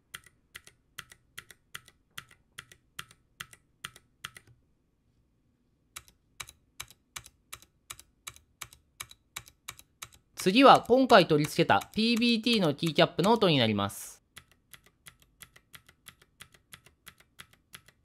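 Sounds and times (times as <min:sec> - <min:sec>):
mechanical keyboard typing: 0:00.1 - 0:04.5, 0:06.0 - 0:13.8, 0:14.4 - 0:18.0.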